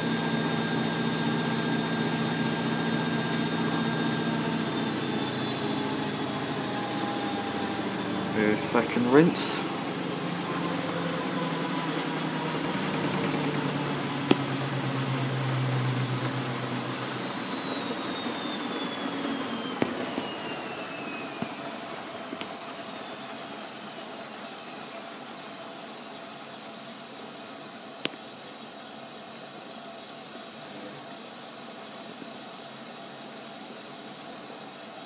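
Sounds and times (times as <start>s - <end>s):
low hum: 0.0s - 22.8s
washing machine motor whine: 0.0s - 28.0s.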